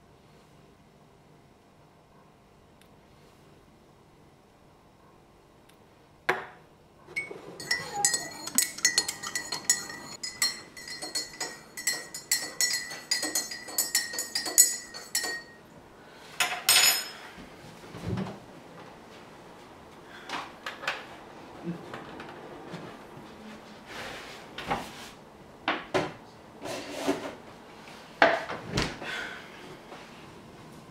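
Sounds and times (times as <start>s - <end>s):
spoon clattering: 7.2s - 15.6s
teaspoon clinking in a mug: 7.2s - 15.6s.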